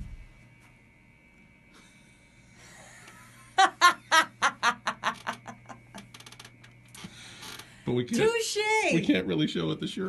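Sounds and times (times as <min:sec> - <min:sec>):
woman laughing: 0:02.8 - 0:06.1.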